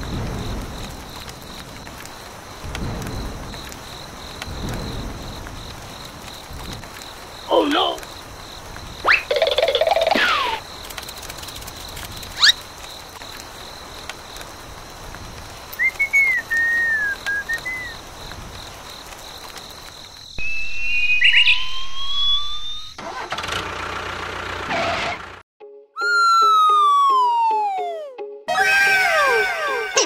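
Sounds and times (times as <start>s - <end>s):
long falling whistle: 15.8s - 18.0s, 20.4s - 23.0s, 26.0s - 30.0s
rising whistle tone: 15.8s - 18.0s, 20.4s - 23.0s, 26.0s - 29.9s.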